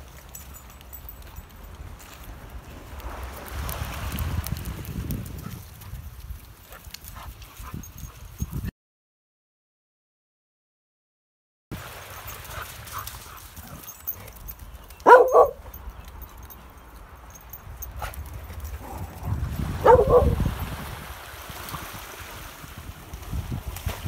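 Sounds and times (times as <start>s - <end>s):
wind rumble on microphone: 0.0s - 8.7s, 12.5s - 24.0s
dog barking: 15.0s - 15.8s, 19.8s - 20.5s.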